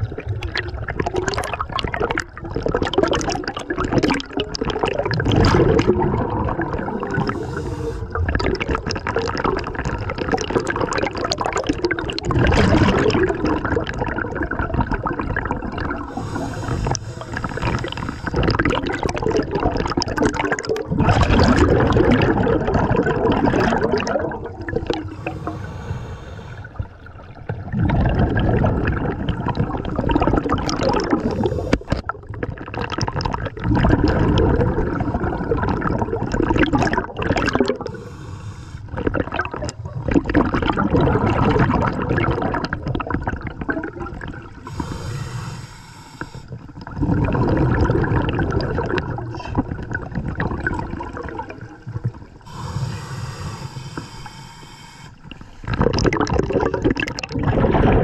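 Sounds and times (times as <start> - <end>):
gurgling exhaled bubbles: 0.0 - 58.0
hissing regulator inhales: 7.0 - 8.2, 16.1 - 18.6, 25.0 - 26.9, 31.2 - 32.0, 37.8 - 39.0, 44.6 - 46.6, 52.5 - 55.7.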